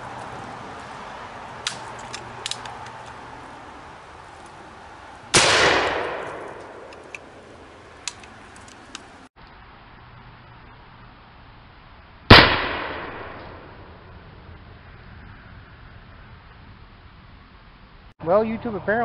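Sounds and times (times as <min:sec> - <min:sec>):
black-powder gunshot: 0:05.3 - 0:06.9, 0:12.3 - 0:13.8.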